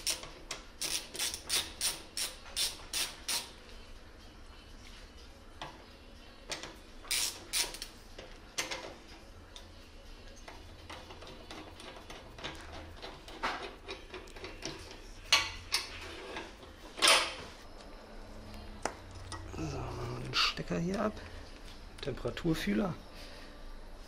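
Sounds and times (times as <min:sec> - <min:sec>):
ratchet clicking: 0:00.0 - 0:03.5, 0:07.1 - 0:08.0.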